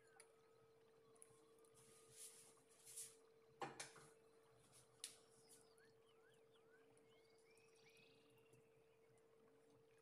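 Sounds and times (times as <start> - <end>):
faint steady hum: 0.0 - 10.0
faint rising chirps: 5.5 - 9.2.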